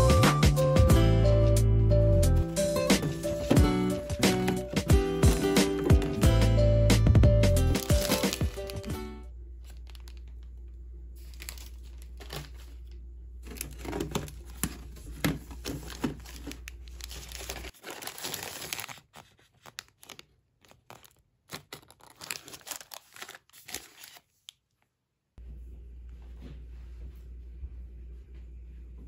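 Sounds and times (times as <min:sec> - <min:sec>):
plastic packets crinkling: 0:02.8 - 0:06.3, 0:07.7 - 0:09.0, 0:09.6 - 0:10.6, 0:11.2 - 0:24.3.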